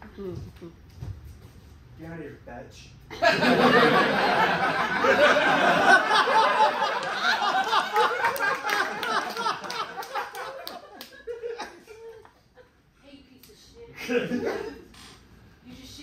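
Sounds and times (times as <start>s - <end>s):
audience laughing: 3.1s - 12.3s
sharp claps: 6.9s - 11.2s.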